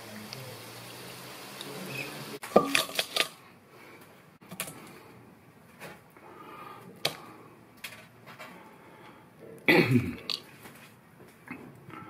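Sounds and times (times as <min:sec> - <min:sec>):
oil sizzling in a wok: 0:00.0 - 0:03.3
utensils clattering against metal bowl: 0:02.4 - 0:03.4.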